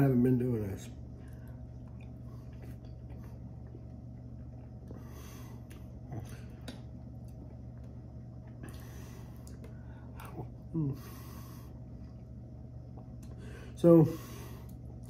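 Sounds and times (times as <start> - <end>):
low room hum: 0.0 - 15.0
man chewing: 1.0 - 10.7, 11.7 - 13.4.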